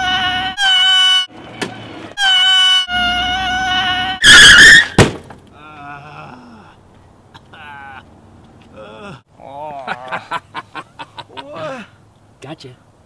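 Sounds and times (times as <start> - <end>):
man screaming: 0.0 - 0.6
sharp impact thunk: 4.8 - 5.4.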